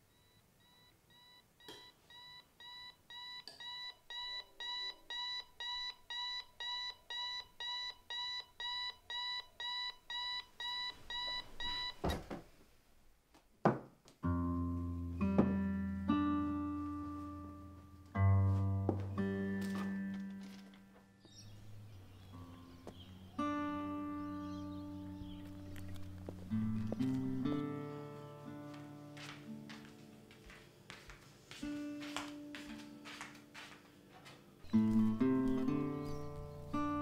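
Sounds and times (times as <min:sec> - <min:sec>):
alarm clock beeping: 0:00.1 - 0:12.0
music with low sustained notes: 0:14.2 - 0:30.3, 0:34.7 - 0:37.0.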